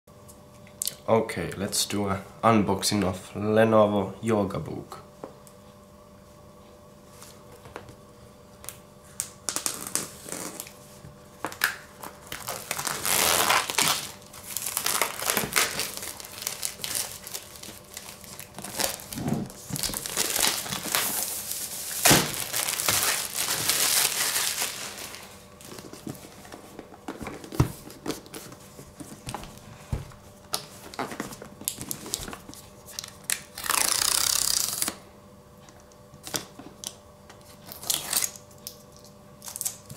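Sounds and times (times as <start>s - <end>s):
cardboard and paper rustling: 12.0s - 33.1s.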